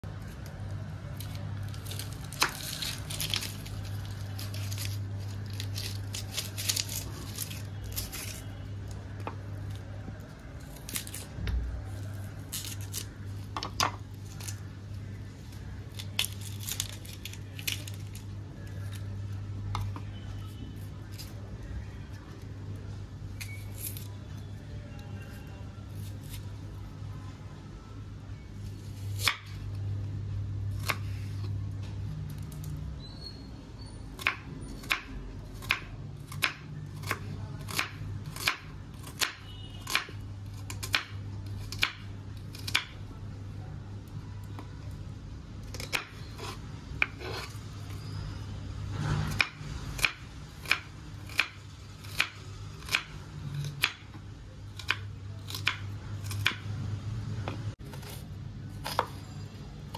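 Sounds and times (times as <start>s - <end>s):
knife chopping on wooden board: 49.3s - 53.1s, 58.8s - 59.2s.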